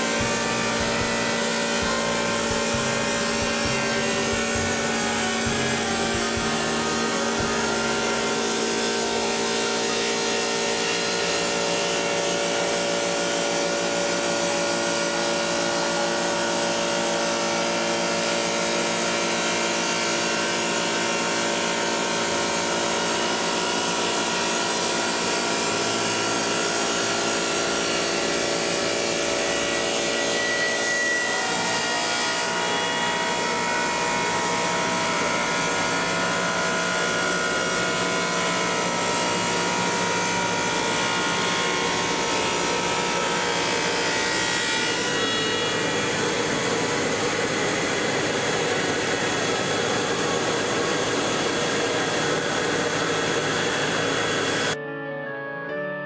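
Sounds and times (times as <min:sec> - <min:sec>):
stone saw motor whine: 0:00.0 - 0:54.8.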